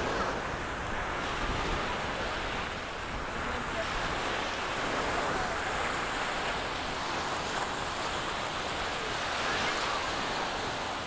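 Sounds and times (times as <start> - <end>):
surf washing: 0.0 - 11.0
faint distant voices: 1.5 - 6.6.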